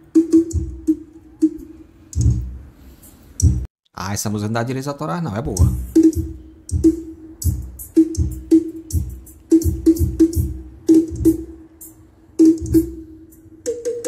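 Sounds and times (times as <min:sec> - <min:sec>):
loud drum-heavy music: 0:00.0 - 0:01.1, 0:03.4 - 0:03.6, 0:05.6 - 0:14.0
deep kick-drum beats: 0:00.1 - 0:01.1, 0:02.2 - 0:02.6, 0:03.4 - 0:03.7, 0:05.5 - 0:11.6, 0:12.4 - 0:13.0.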